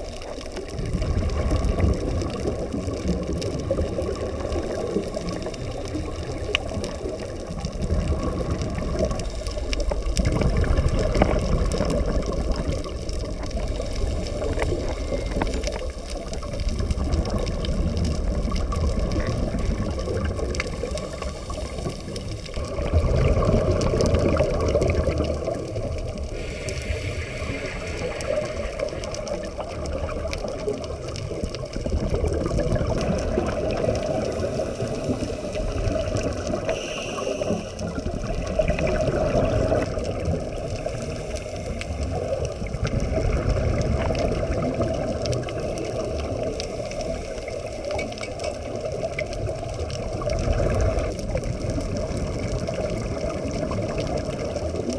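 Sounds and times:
divers breathing underwater: 0:26.3 - 0:29.0, 0:34.2 - 0:38.0.

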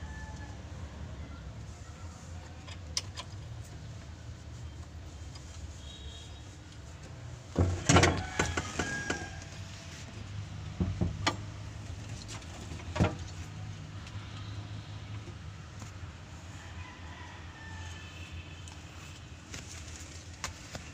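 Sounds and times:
metal clanks and rattles: 0:07.5 - 0:09.4.

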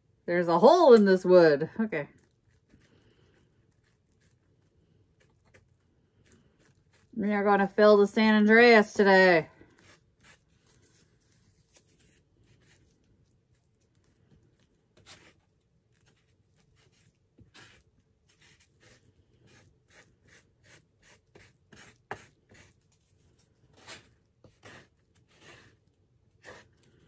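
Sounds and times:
filler scraping and stirring: 0:00.0 - 0:27.0.

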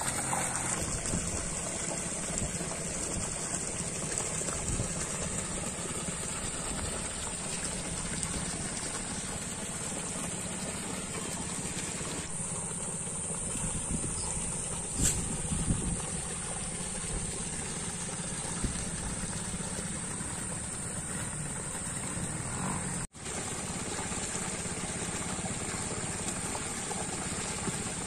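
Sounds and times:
small engine running: 0:00.0 - 0:28.0
water gushing into plastic drum: 0:00.0 - 0:28.0.

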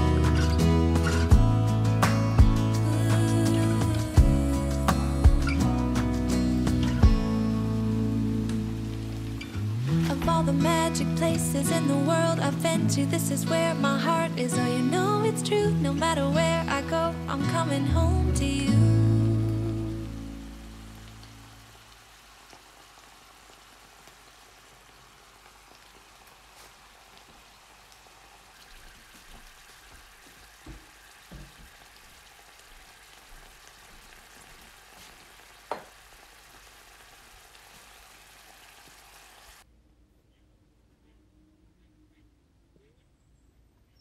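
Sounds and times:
pan simmering with small pops: 0:19.5 - 0:39.6.

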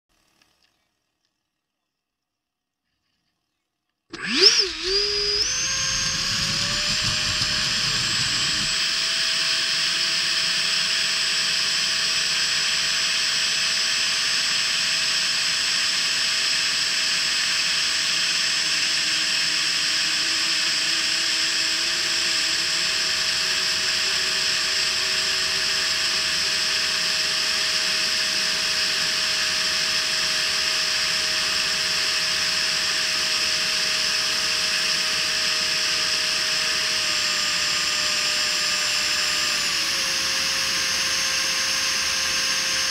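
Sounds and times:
electric ducted fan whine: 0:04.4 - 0:08.8.

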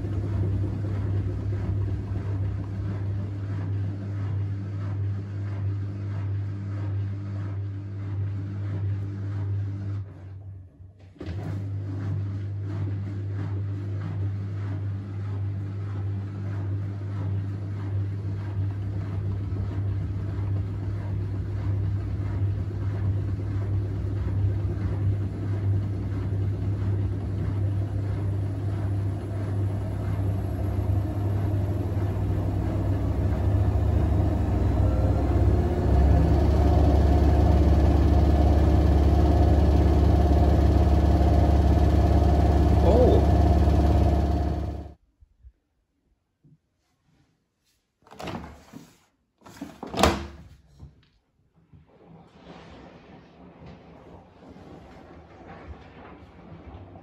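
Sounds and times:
washing machine spinning: 0:00.0 - 0:10.2, 0:11.2 - 0:45.0, 0:51.9 - 0:57.0
faint rising whine: 0:25.4 - 0:45.0.

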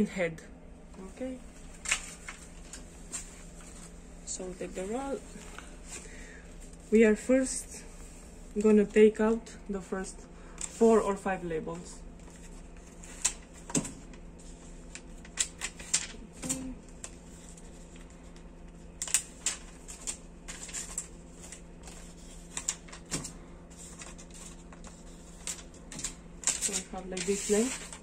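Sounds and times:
faint steady hum: 0:00.0 - 0:28.0
paper labels peeled crackling: 0:01.6 - 0:04.0, 0:12.2 - 0:28.0.

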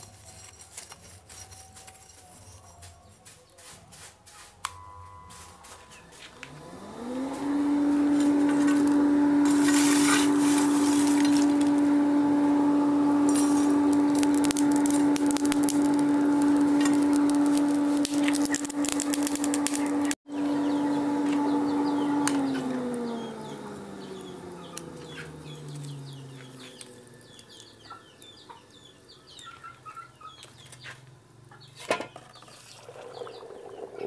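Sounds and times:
coals crackling: 0:00.0 - 0:34.0
electric blower hum: 0:04.6 - 0:29.4.

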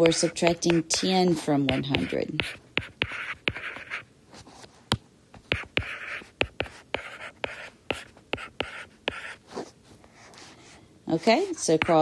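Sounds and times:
stylus tapping on tablet: 0:00.0 - 0:03.9, 0:11.7 - 0:12.0
stylus scratching strokes: 0:00.0 - 0:04.7, 0:05.5 - 0:12.0.

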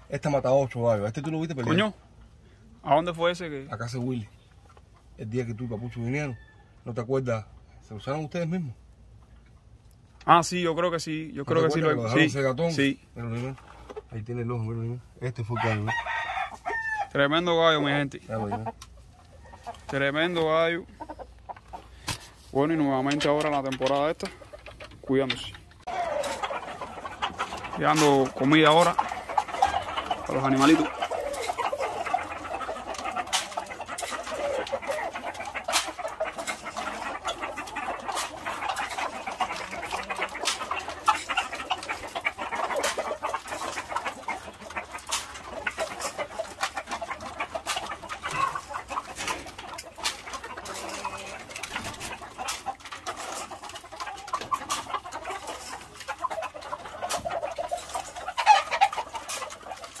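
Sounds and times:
roosters clucking and calling: 0:00.0 - 1:00.0.

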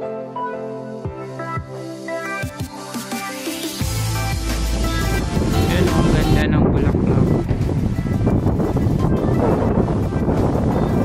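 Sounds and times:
background music: 0:00.0 - 0:11.0
wind buffeting microphone: 0:04.6 - 0:11.0.

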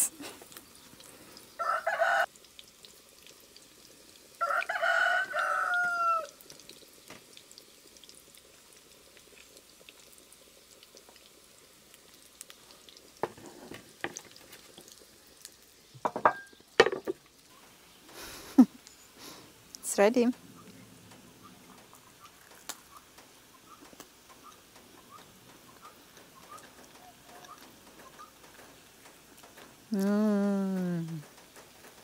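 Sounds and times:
faint frying sizzle: 0:00.0 - 0:32.0
rooster crowing: 0:01.6 - 0:02.3, 0:04.4 - 0:06.4.

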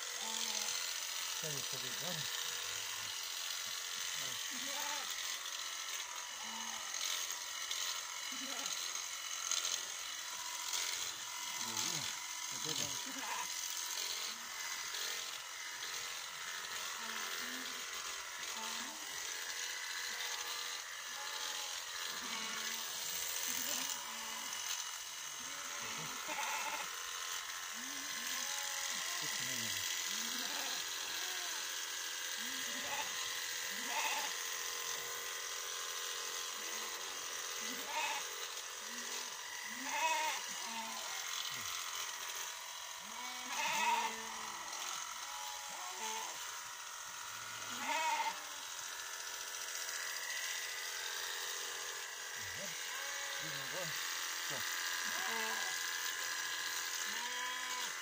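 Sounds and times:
electric clippers buzzing: 0:00.0 - 0:58.0
sheep bleating: 0:04.4 - 0:05.4, 0:12.8 - 0:13.6, 0:18.4 - 0:19.0, 0:21.1 - 0:22.8, 0:25.4 - 0:27.0, 0:27.8 - 0:31.6, 0:32.3 - 0:34.4, 0:37.6 - 0:41.8, 0:43.0 - 0:46.4, 0:47.6 - 0:48.5, 0:52.7 - 0:55.9, 0:57.0 - 0:58.0.

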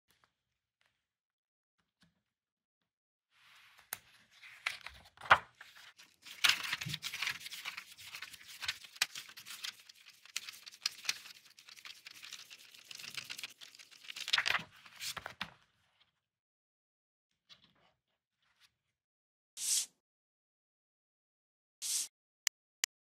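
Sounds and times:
paper pages rustling: 0:03.7 - 0:15.6.

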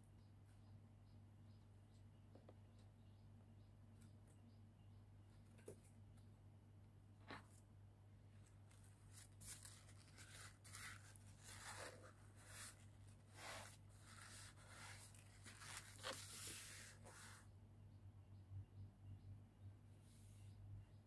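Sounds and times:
paper towel crinkling: 0:08.7 - 0:17.4.

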